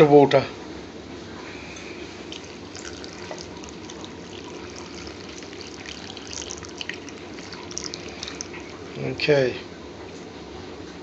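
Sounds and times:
water trickling and splashing: 0:02.2 - 0:09.1.

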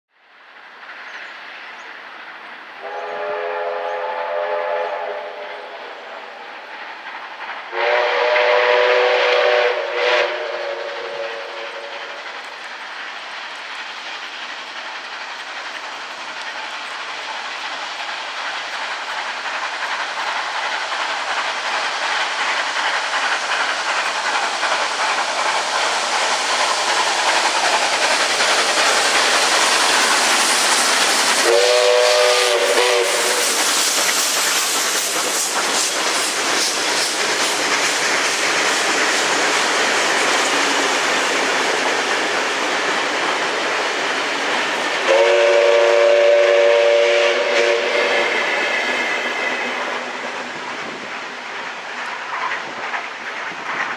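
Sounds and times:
train running on rails: 0:00.1 - 0:53.9
steam locomotive exhaust: 0:00.3 - 0:53.9
steam whistle blasts: 0:02.8 - 0:06.0, 0:07.7 - 0:12.0, 0:31.4 - 0:33.6, 0:45.1 - 0:48.5.

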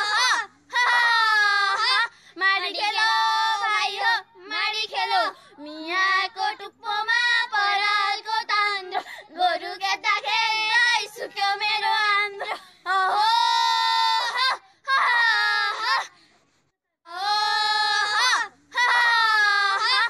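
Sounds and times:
high voices singing: 0:00.0 - 0:05.4.

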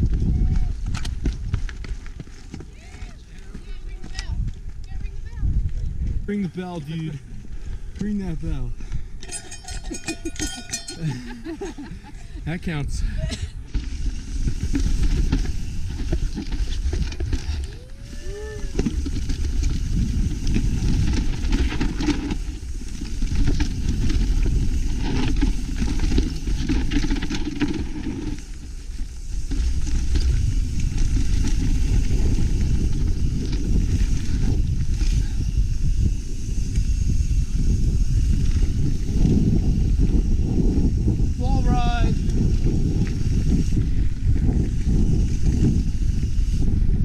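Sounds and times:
bike rattling over rock: 0:00.0 - 0:04.3, 0:13.6 - 0:41.4
wind on microphone: 0:00.0 - 0:47.0.

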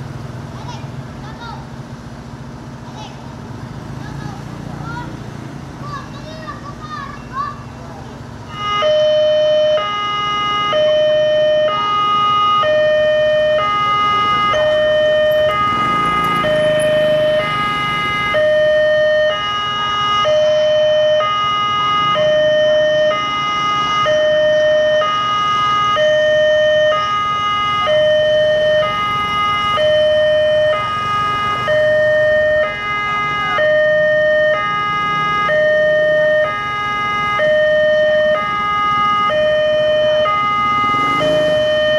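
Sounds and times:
level crossing alarm two tones: 0:08.6 - 0:19.5, 0:20.2 - 0:25.3, 0:25.9 - 0:32.8, 0:35.4 - 0:36.7, 0:37.3 - 0:41.9.

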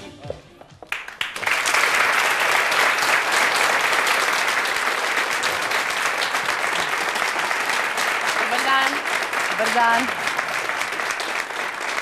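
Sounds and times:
audience applauding: 0:00.9 - 0:12.0.

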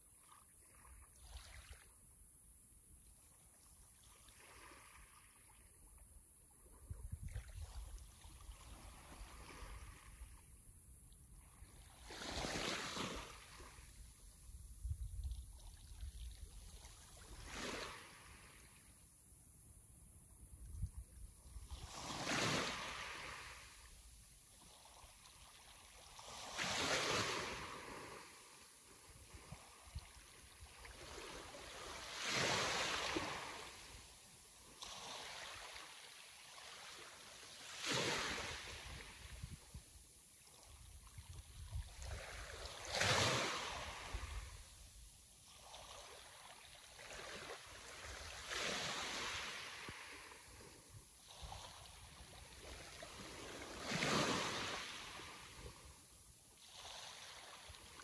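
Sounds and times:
sea waves breaking: 0:12.0 - 0:13.9, 0:21.9 - 0:23.8, 0:30.9 - 0:34.0, 0:47.0 - 0:55.8.

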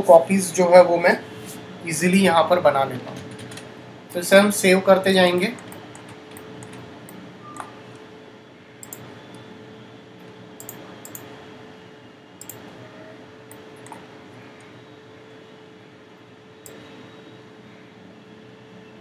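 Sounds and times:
faint hum: 0:00.0 - 0:19.0
computer mouse clicks: 0:05.6 - 0:07.7, 0:08.8 - 0:09.4, 0:10.6 - 0:11.3, 0:12.4 - 0:12.6, 0:13.5 - 0:14.0.

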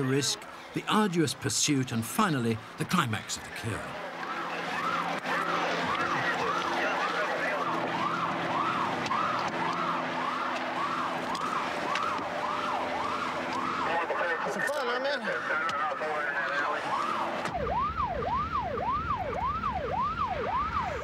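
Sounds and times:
police siren yelping: 0:04.2 - 0:21.0.

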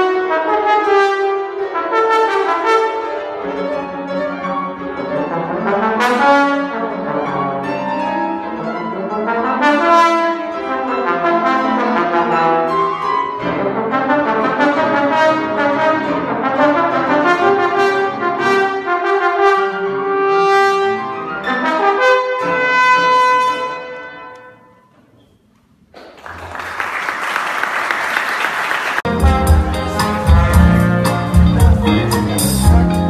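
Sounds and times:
trombone playing slow melody: 0:00.0 - 0:04.2, 0:04.8 - 0:24.6, 0:29.1 - 0:33.0
grand piano accompaniment: 0:00.0 - 0:33.0
applause: 0:25.9 - 0:29.1.

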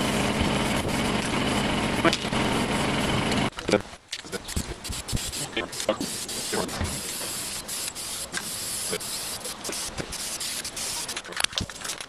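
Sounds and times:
spray paint can hissing: 0:04.4 - 0:11.2.

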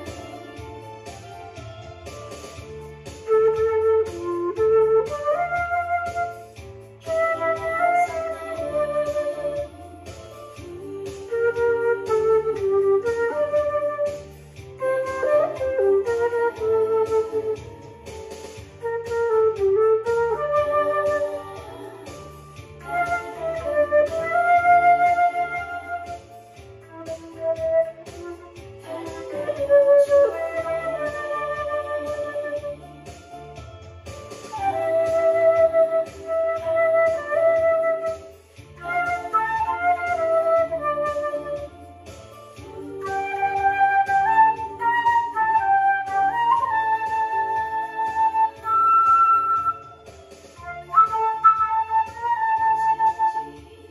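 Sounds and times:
flute playing a melody: 0:00.0 - 0:00.6, 0:02.1 - 0:21.8, 0:22.6 - 0:33.3, 0:34.4 - 0:53.9.

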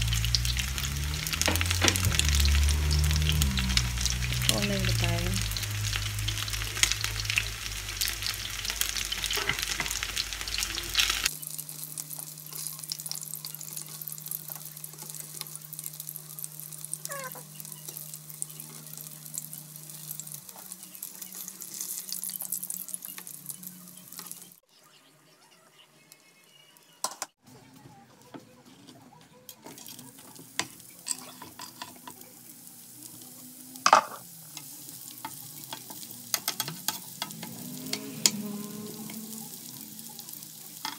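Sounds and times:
chicken sizzling in oil: 0:00.0 - 0:24.7, 0:29.1 - 0:40.9
metal tongs clicking on pan: 0:34.6 - 0:38.4.

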